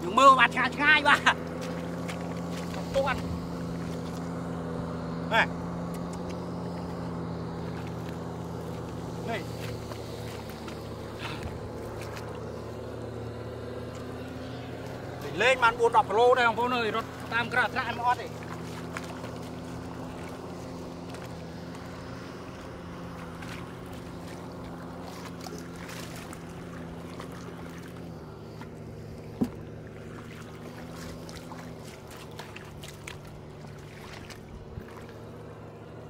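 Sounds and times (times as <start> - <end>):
tractor engine running: 0.0 - 36.0
hands squelching in wet mud: 1.4 - 4.5, 5.8 - 15.3, 18.1 - 36.0.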